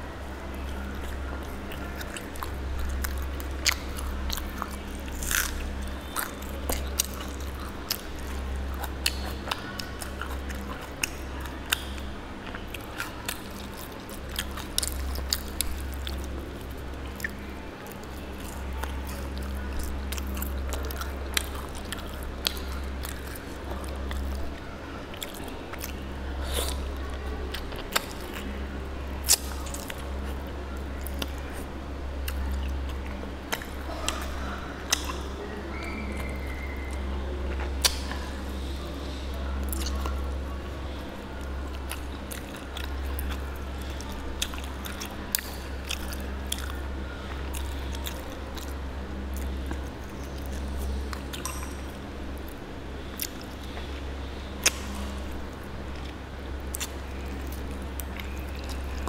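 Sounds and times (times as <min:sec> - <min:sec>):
steady low hum: 0:00.0 - 0:59.0
chewing and biting: 0:00.5 - 0:38.6, 0:39.6 - 0:59.0
sharp mouth clicks: 0:33.5 - 0:37.0, 0:37.6 - 0:38.2, 0:54.5 - 0:55.3.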